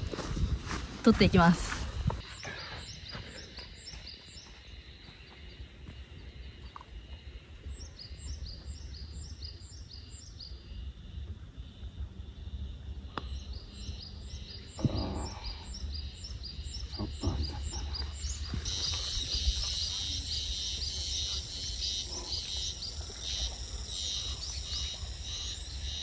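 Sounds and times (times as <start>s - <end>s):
wind on microphone: 0.0s - 2.2s
birds chirping: 1.0s - 10.8s, 13.1s - 26.0s
dense chorus of chirping: 1.2s - 26.0s.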